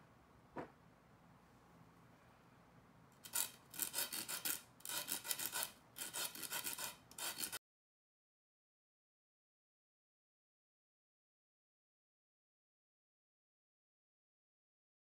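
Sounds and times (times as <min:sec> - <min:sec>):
abrasive rasping against leather: 0:03.2 - 0:07.6.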